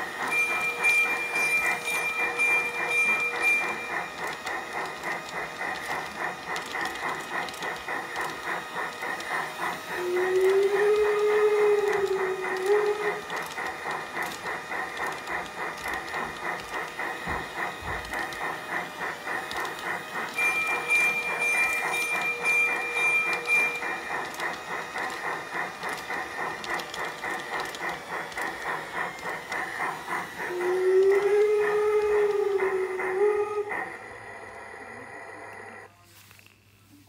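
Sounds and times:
model train rhythmic beat: 0.0s - 35.9s
steady motor whine: 1.1s - 35.9s.

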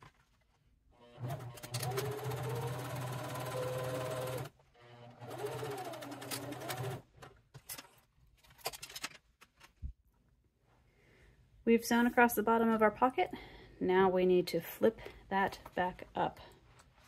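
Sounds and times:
sewing machine stitching: 1.0s - 7.4s.

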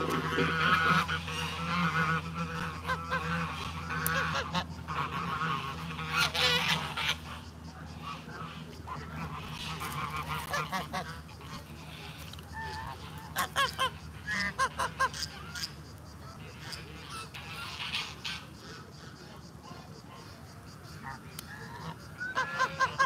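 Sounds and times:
geese honking: 0.0s - 23.0s.

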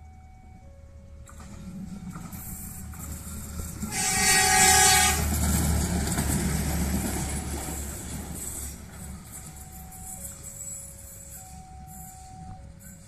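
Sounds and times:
train engine rumble: 0.0s - 13.0s
wheels clattering on rails: 1.2s - 13.0s
train horn blast: 3.8s - 5.4s.

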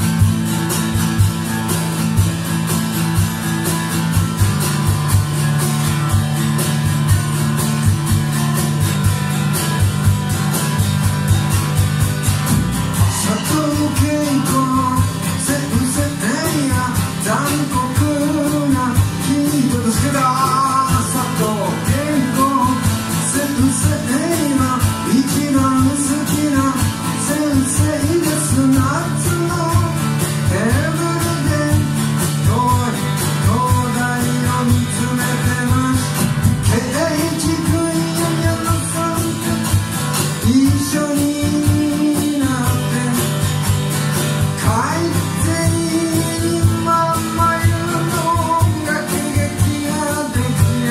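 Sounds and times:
drum kit: 0.0s - 50.9s
hand percussion: 0.0s - 50.9s
strummed acoustic guitar: 0.0s - 50.9s
man singing: 12.4s - 50.9s.

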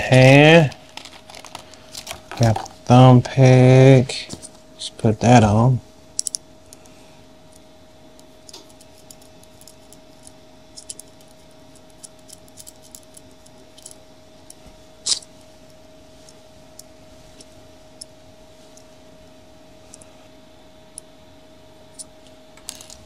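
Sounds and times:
faint steady hum: 0.0s - 23.0s
small metal clicks and ticks: 6.2s - 6.8s.

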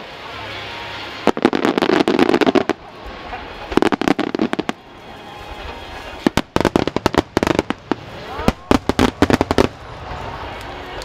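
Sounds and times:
fireworks crackling: 0.0s - 11.0s
fireworks bangs: 1.0s - 10.6s.

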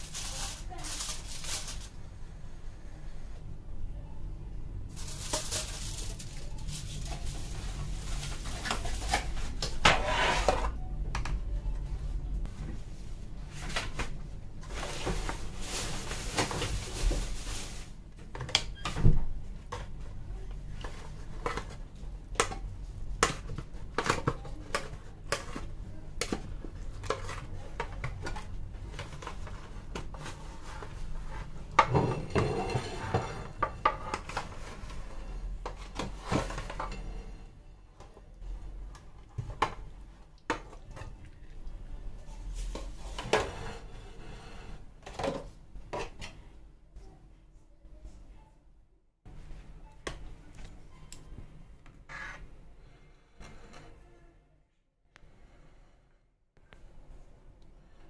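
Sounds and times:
aluminium foil crinkling: 0.0s - 2.0s, 4.9s - 9.8s, 13.6s - 18.2s
spatula scraping foil tray: 5.0s - 10.7s, 30.1s - 35.4s, 43.0s - 44.9s.

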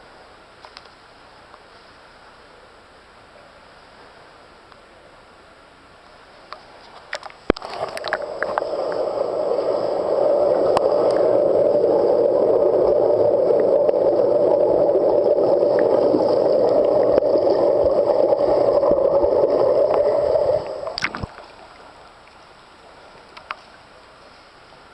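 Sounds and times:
muffled underwater bubbling: 7.5s - 21.9s.

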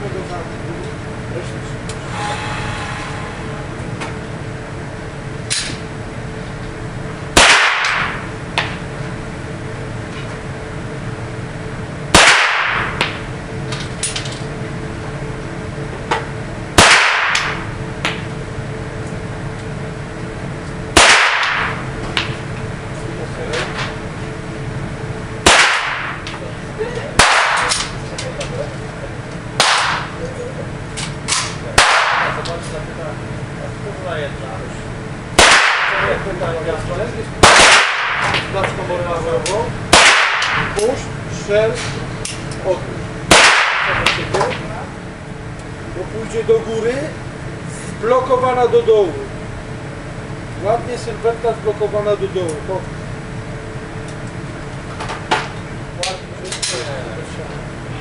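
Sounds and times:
pistol shots echoing: 7.4s - 8.2s, 12.2s - 13.0s, 16.8s - 17.6s, 21.0s - 21.8s, 25.4s - 26.2s, 27.2s - 27.8s, 29.6s - 30.1s, 31.8s - 32.4s, 35.4s - 36.1s, 37.4s - 38.3s, 39.9s - 40.7s, 43.3s - 44.0s.

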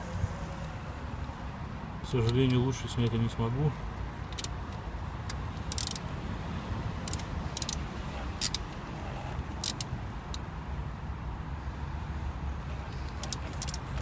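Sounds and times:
socket ratchet clicking: 4.2s - 6.1s, 7.0s - 8.8s, 9.4s - 10.5s, 13.0s - 14.0s.

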